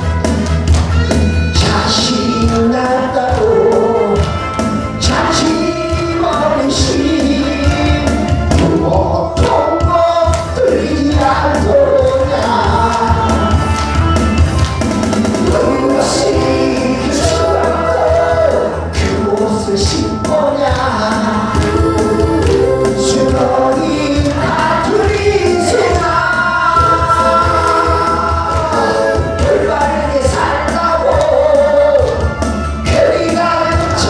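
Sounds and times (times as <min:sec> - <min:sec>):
backing track with bass and beat: 0:00.0 - 0:34.0
man singing into microphone: 0:01.4 - 0:13.8, 0:15.4 - 0:34.0.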